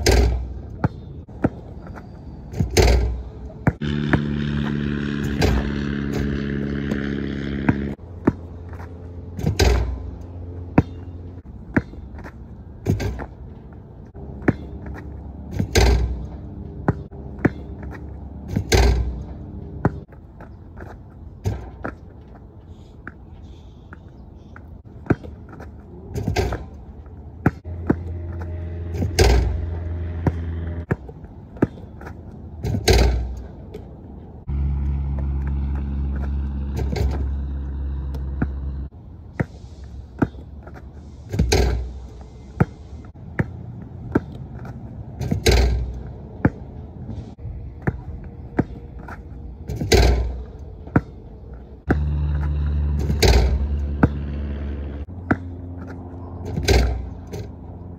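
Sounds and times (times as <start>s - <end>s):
basketball hitting rim and backboard: 0.0s - 1.6s, 2.5s - 8.6s, 9.3s - 12.0s, 12.8s - 13.4s, 14.3s - 20.0s, 21.4s - 22.0s, 26.1s - 26.8s, 27.4s - 31.8s, 32.6s - 33.5s, 36.1s - 37.5s, 41.3s - 42.0s, 45.2s - 46.7s, 49.7s - 51.2s, 51.9s - 54.6s, 56.5s - 57.5s
basketball bouncing: 0.0s - 1.7s, 2.5s - 13.4s, 14.2s - 22.2s, 24.9s - 33.9s, 35.1s - 38.8s, 42.6s - 46.7s, 47.8s - 51.2s, 51.9s - 54.4s, 55.2s - 57.3s
low droning hum: 0.0s - 57.9s.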